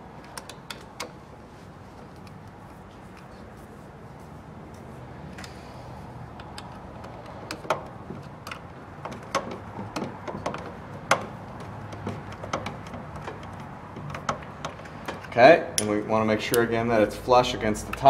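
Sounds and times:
metallic tool clicks and taps: 6.4s - 16.7s.

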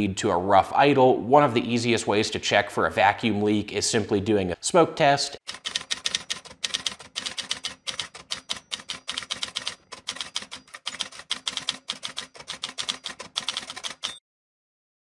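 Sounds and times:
keystroke clicks: 5.5s - 14.2s.

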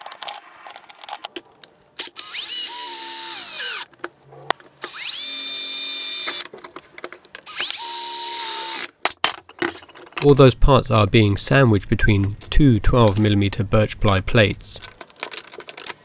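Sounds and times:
power drill whining: 2.1s - 3.9s, 4.9s - 6.4s, 7.5s - 8.8s
clicks and knocks of parts: 6.2s - 7.9s, 8.8s - 10.4s, 14.8s - 16.0s.

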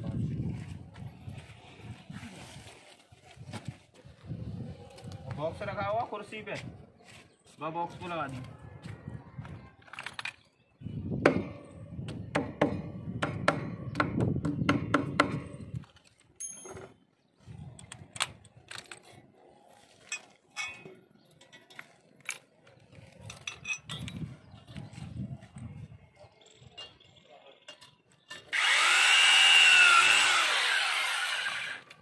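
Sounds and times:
metal tools clinking: 16.4s - 17.0s, 20.0s - 22.6s, 23.2s - 24.4s.

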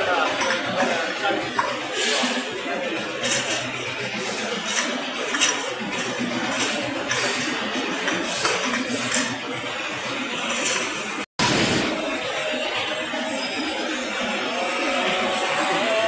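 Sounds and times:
room noise: 0.0s - 16.0s
indistinct voices: 11.8s - 16.0s.

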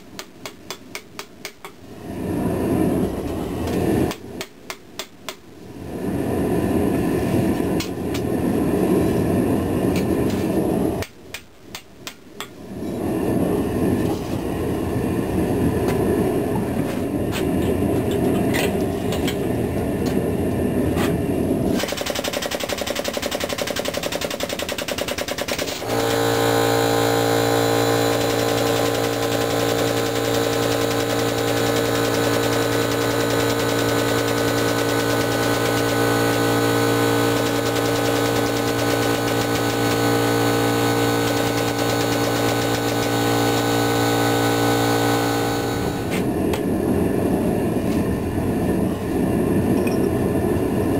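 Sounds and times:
steady rushing noise: 1.8s - 4.4s, 5.6s - 11.0s, 12.6s - 50.9s
hydraulic press humming: 25.8s - 46.3s.

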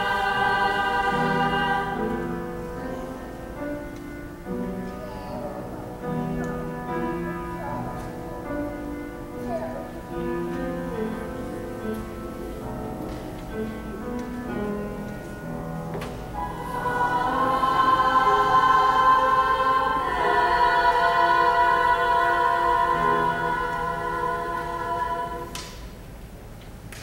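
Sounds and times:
small choir singing: 0.0s - 3.8s, 16.3s - 25.9s.

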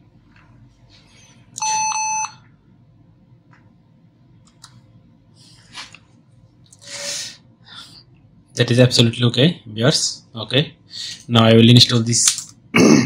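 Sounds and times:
laptop startup beeps: 1.6s - 2.4s.

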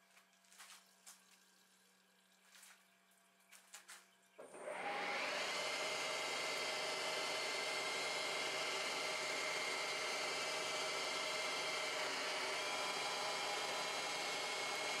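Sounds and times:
lathe spindle whine: 4.4s - 15.0s.

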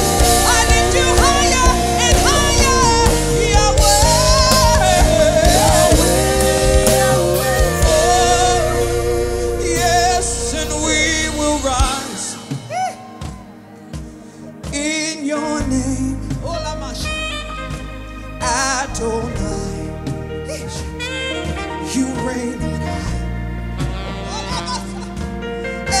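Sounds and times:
band with bass and drums: 0.0s - 14.9s, 15.6s - 26.0s
voices singing with vibrato: 0.0s - 15.9s.

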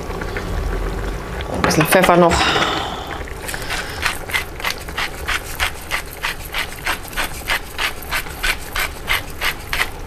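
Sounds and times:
pepper mill grinding: 3.5s - 10.0s.

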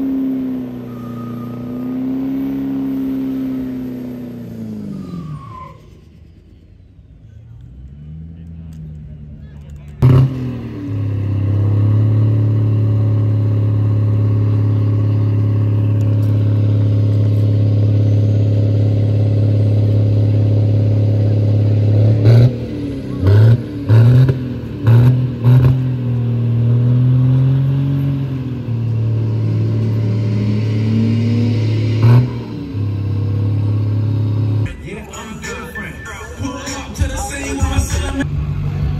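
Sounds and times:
diesel pickup engine revving: 0.0s - 35.6s, 36.4s - 38.9s.

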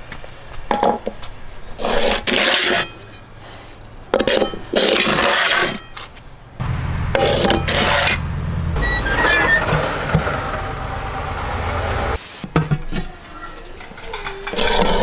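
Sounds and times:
metal pans scraping on stone: 13.9s - 15.0s.

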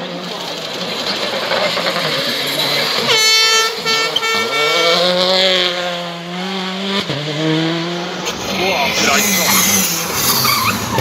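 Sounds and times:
rally car engine accelerating: 0.0s - 11.0s
steady horn: 3.0s - 5.7s.

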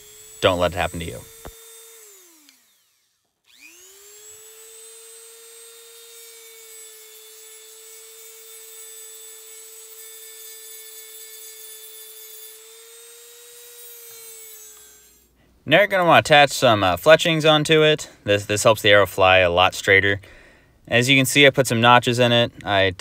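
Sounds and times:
rotary tool whining: 0.0s - 15.4s.

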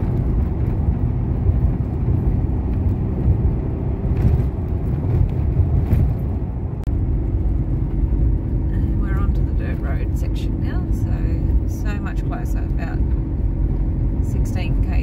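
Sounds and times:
truck engine and tyres rumbling: 0.0s - 15.0s.

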